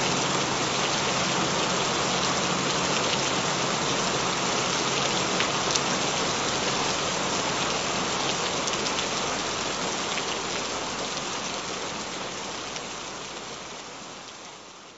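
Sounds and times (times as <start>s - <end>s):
steady rain falling: 0.0s - 14.9s.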